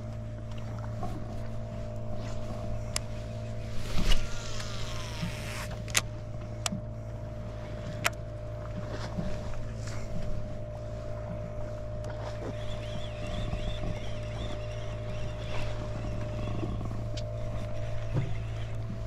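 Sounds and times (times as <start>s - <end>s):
reel spool whining: 0.0s - 19.0s
steady low hum: 0.0s - 19.0s
reel clicks: 1.9s - 6.9s, 7.7s - 8.3s, 12.0s - 19.0s.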